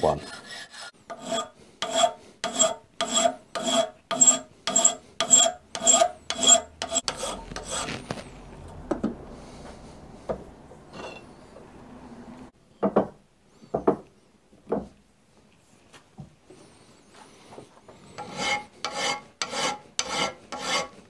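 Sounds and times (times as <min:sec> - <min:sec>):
file scraping metal: 0:00.0 - 0:08.4, 0:18.0 - 0:21.0.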